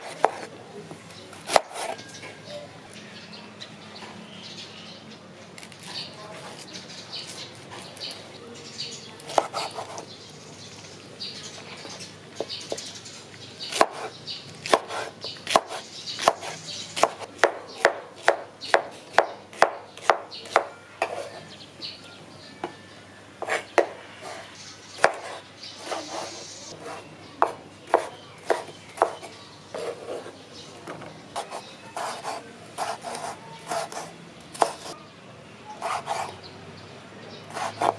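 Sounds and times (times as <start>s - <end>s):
knife chopping on wooden board: 0.0s - 0.5s, 1.4s - 2.0s, 9.2s - 10.0s, 13.7s - 21.4s, 23.4s - 24.0s, 25.0s - 35.0s, 37.5s - 37.9s.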